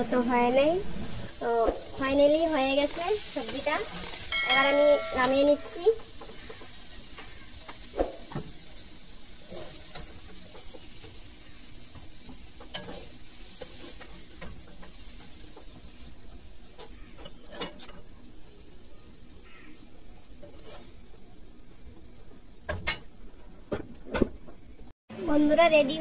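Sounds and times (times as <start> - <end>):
faint sizzle: 0.0 - 26.0
spatula knocking pan: 4.3 - 8.5
spatula scraping pan: 20.4 - 21.1.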